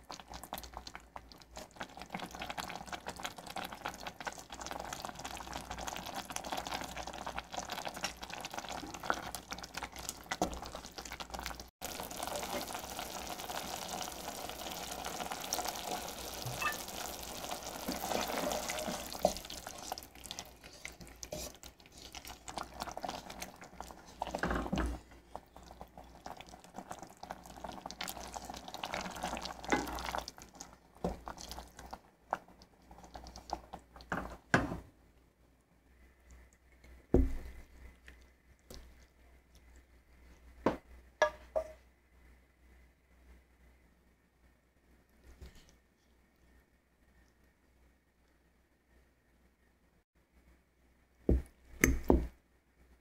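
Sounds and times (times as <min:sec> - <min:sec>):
spoon stirring liquid in pot: 0:14.9 - 0:34.7
spoon knocking against pot: 0:40.7 - 0:41.8.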